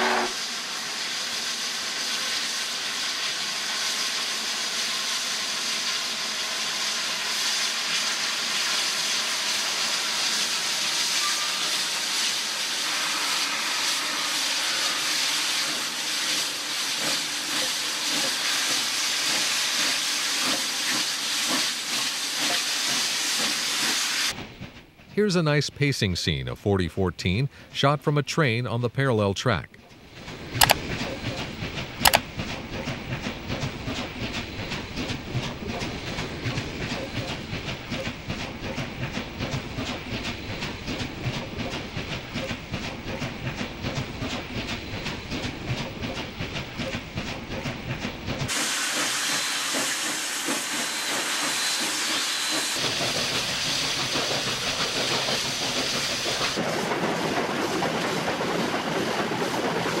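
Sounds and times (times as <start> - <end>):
steady hiss of steam: 0.0 - 24.4, 48.5 - 60.0
steam locomotive exhaust beating: 0.0 - 28.5, 30.0 - 60.0.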